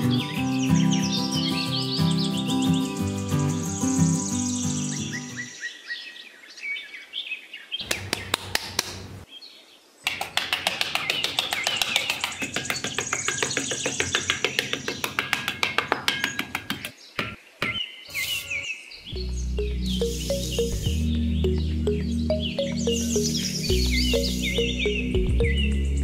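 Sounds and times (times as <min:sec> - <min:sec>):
birds chirping: 0:00.0 - 0:26.0
metal trowel scraping sand: 0:18.1 - 0:18.7.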